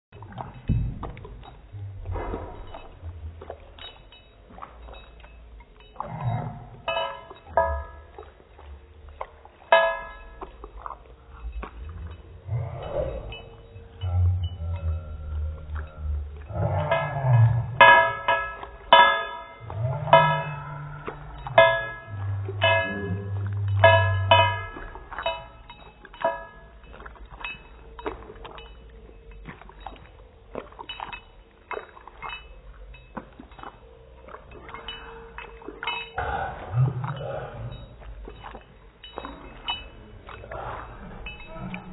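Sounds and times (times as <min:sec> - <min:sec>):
dog lapping from a plate: 0:15.6 - 0:41.9.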